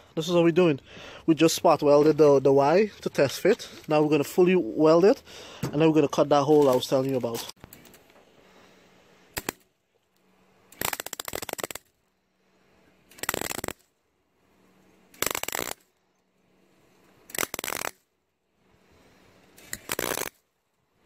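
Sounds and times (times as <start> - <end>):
welder arc crackling: 10.7 - 11.8, 13.1 - 13.8, 15.2 - 15.9, 17.3 - 18.0, 19.6 - 20.3.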